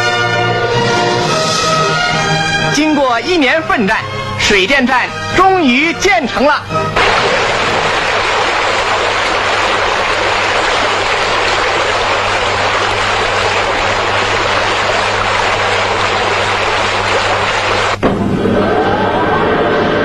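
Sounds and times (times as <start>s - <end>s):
white water rushing: 7.0s - 18.0s.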